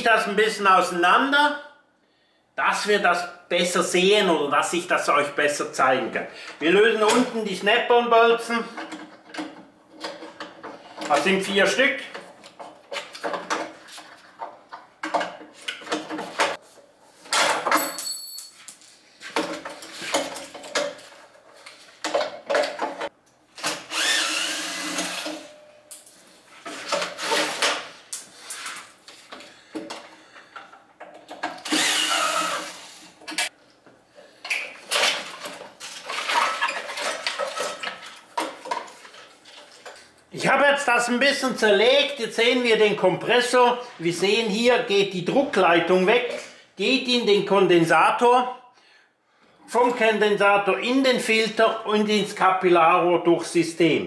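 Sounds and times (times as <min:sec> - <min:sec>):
sheet metal parts clattering: 0:17.2 - 0:23.1, 0:34.6 - 0:40.1
cordless drill running: 0:23.9 - 0:25.5, 0:31.6 - 0:33.0.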